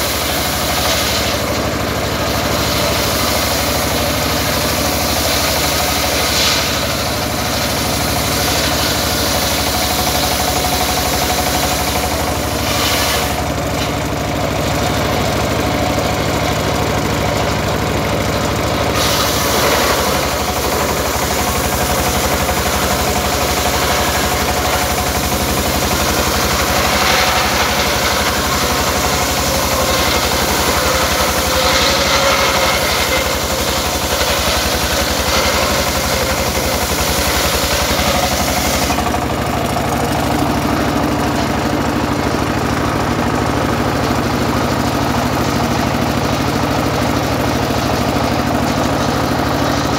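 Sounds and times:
circular saw cutting timber: 0:00.0 - 0:49.9
diesel engine running: 0:00.0 - 0:49.9.

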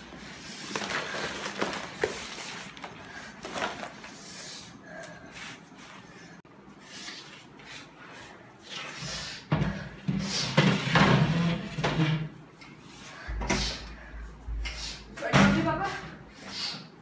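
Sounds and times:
metal chair scraping on tiled floor: 0:09.7 - 0:12.4.

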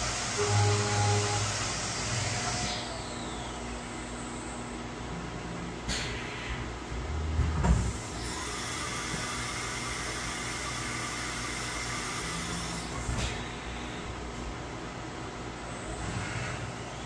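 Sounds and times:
cnc mill hissing: 0:00.0 - 0:04.8, 0:07.8 - 0:14.0.

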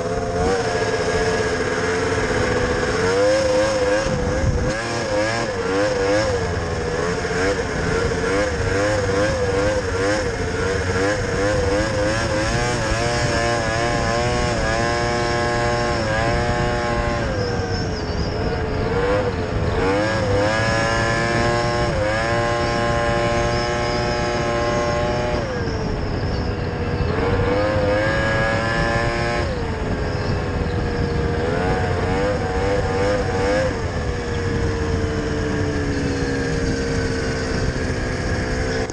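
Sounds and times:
snowmobile engine revving: 0:00.0 - 0:38.9
steady rushing noise: 0:00.0 - 0:38.9.

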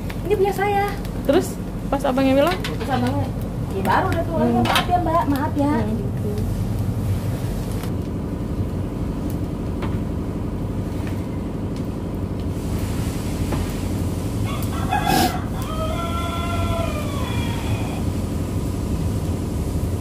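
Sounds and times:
steady low rumble: 0:00.0 - 0:14.8
rooster crowing: 0:14.4 - 0:18.2.

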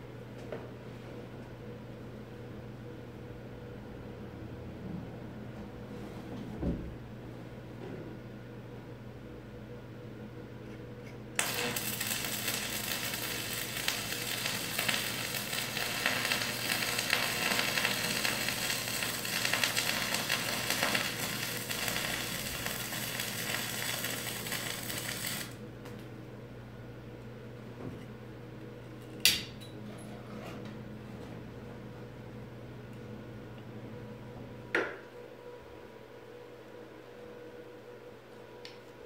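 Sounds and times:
welding arc crackling: 0:11.4 - 0:25.6.

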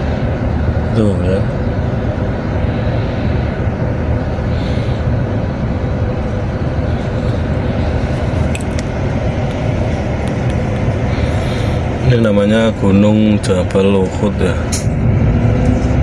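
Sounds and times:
bus diesel engine idling: 0:00.0 - 0:16.0.

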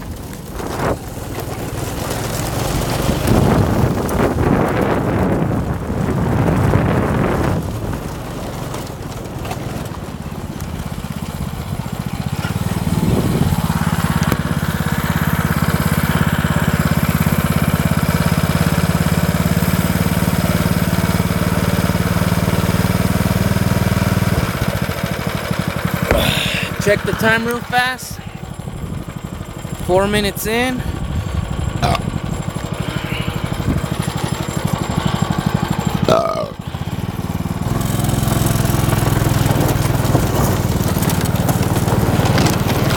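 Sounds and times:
go-kart engine: 0:00.0 - 0:42.9
wind rushing over microphone: 0:03.1 - 0:07.9, 0:12.9 - 0:13.6.

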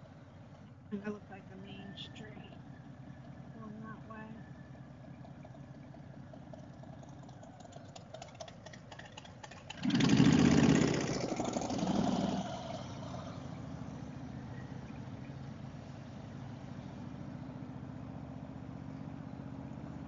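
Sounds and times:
motorcycle engine revving: 0:05.1 - 0:20.0.

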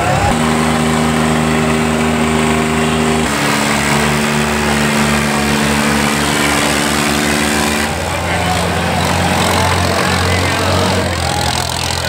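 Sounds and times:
tractor diesel engines at full throttle: 0:00.0 - 0:12.0.

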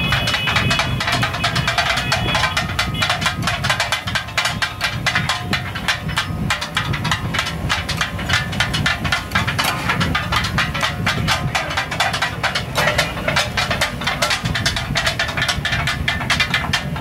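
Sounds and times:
steel blades clattering on griddle: 0:00.1 - 0:17.0.

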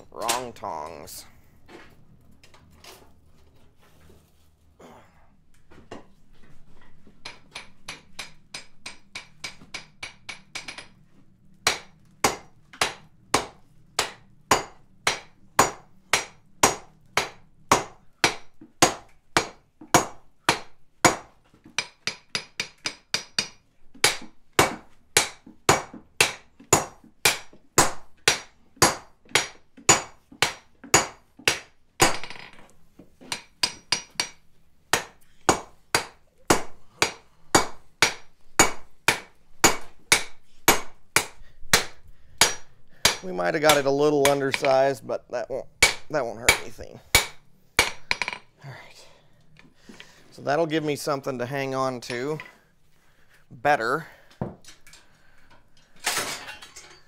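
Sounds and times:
hammer striking steel on anvil: 0:07.2 - 0:11.0, 0:11.6 - 0:32.5, 0:33.3 - 0:44.9, 0:45.8 - 0:48.5.

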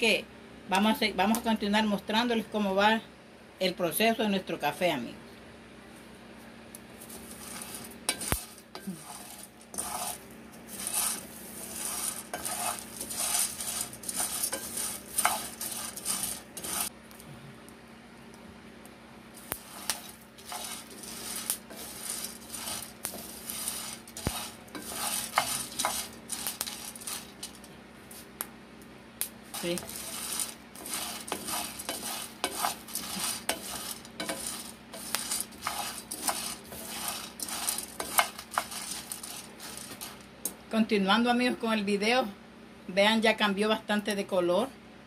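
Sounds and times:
coffee beans scraping in a pan: 0:06.9 - 0:16.9, 0:19.4 - 0:27.7, 0:29.3 - 0:40.5.

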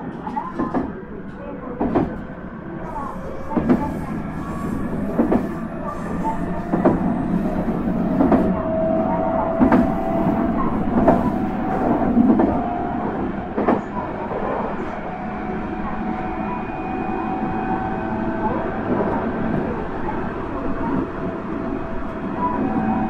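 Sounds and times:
train running rumble: 0:00.0 - 0:23.0
rail joint clacks: 0:00.1 - 0:14.7.

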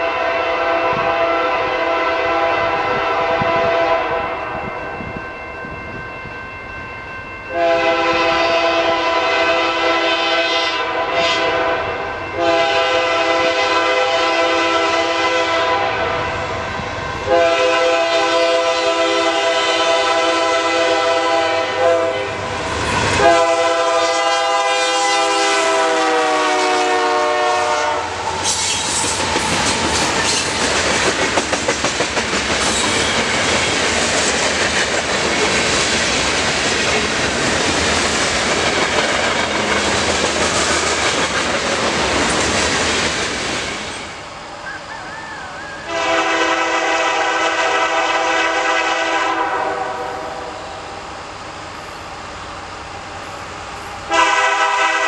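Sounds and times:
locomotive air horn blasts: 0:00.0 - 0:04.4, 0:07.5 - 0:16.3, 0:17.3 - 0:22.4, 0:23.2 - 0:28.2, 0:45.8 - 0:50.7, 0:54.1 - 0:55.0
freight cars rumbling on rails: 0:24.6 - 0:48.2.

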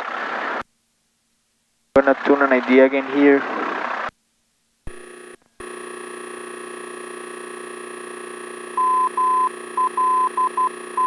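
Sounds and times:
steady electrical hum: 0:04.8 - 0:11.0
morse code tone: 0:04.9 - 0:11.0.

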